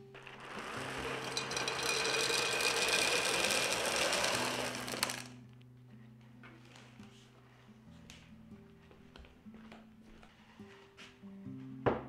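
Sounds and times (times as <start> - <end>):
pebbles rattling in glass vase: 0.2 - 5.4
soft background music: 5.3 - 12.0.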